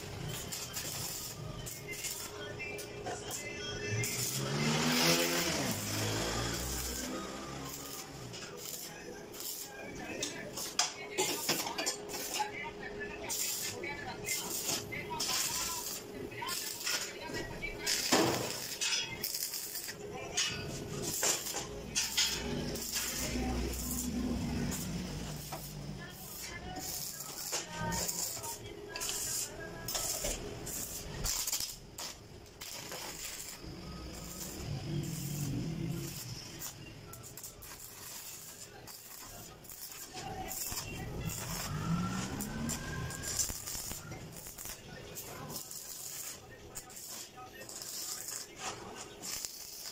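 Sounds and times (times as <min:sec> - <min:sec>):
arc welding crackling: 0:00.0 - 0:49.9
vehicle engine accelerating: 0:04.3 - 0:07.9, 0:41.6 - 0:43.3.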